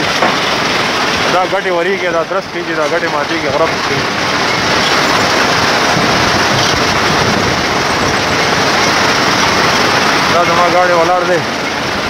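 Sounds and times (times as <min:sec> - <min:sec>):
vehicle road and wind noise: 0:00.0 - 0:12.0.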